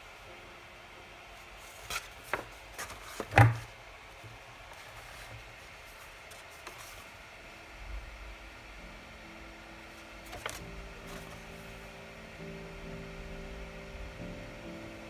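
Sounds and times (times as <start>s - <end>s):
paper crinkling and rustling: 1.5s - 3.7s, 4.6s - 7.2s, 10.2s - 11.7s.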